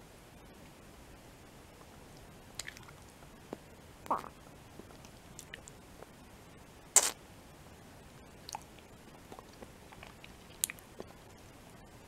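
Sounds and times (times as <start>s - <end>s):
sharp lip smack: 7.0s - 7.2s
wet mouth sucking sounds: 7.0s - 7.2s.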